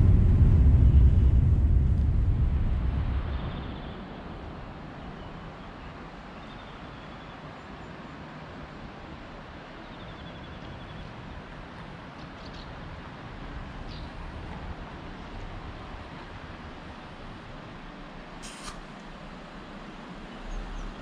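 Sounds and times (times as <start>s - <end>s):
outdoor background noise: 0.0s - 21.0s.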